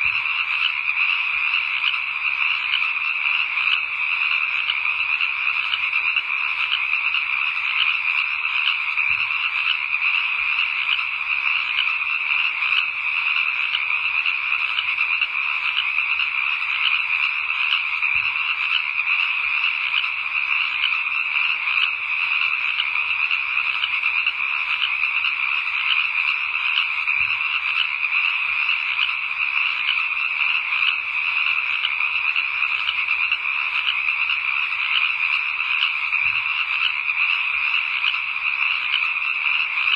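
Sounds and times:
chorus of small calling animals: 0.0s - 39.9s.

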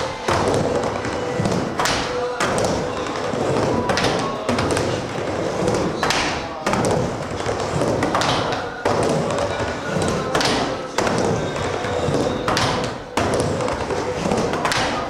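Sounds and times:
skateboard wheels rolling on wood: 0.0s - 15.0s
skateboard trucks knocking metal coping: 0.2s - 15.0s.

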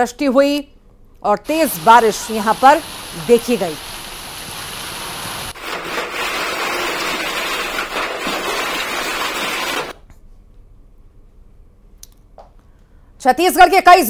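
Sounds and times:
heavy rain falling: 1.5s - 9.9s.

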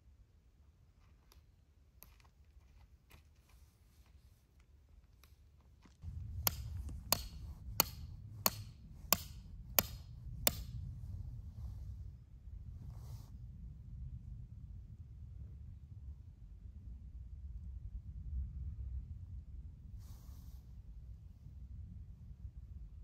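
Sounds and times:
low rumble: 6.0s - 19.7s
hammer striking metal tent peg: 6.1s - 10.9s.

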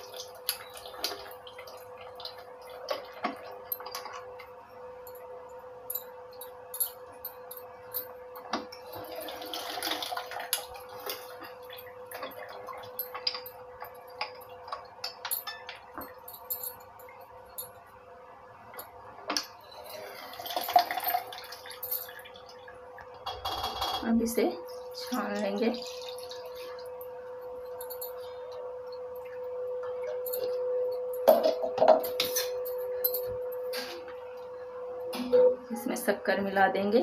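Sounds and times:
faint steady hum: 0.0s - 37.0s
juice splashing: 24.8s - 27.0s.

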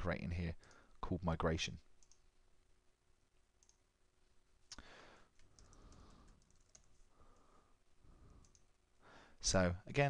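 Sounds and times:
computer mouse clicks: 2.0s - 2.3s, 3.6s - 3.8s, 5.4s - 7.0s, 8.4s - 8.7s.

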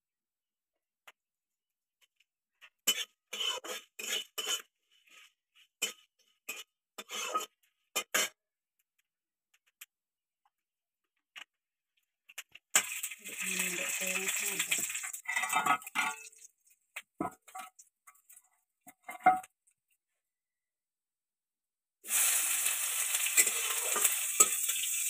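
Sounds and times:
metal spatula scraping a pan: 2.7s - 8.4s, 12.8s - 16.5s, 22.1s - 25.0s.

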